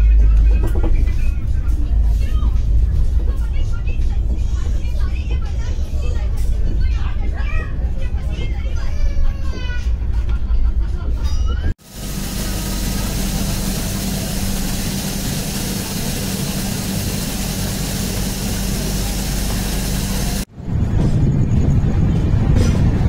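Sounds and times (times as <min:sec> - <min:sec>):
train wheels and air rushing: 0:11.8 - 0:23.0.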